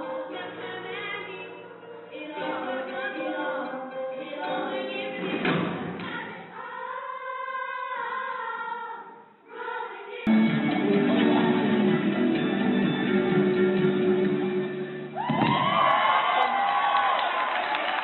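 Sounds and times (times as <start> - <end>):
girls' choir singing: 0.0 - 12.2.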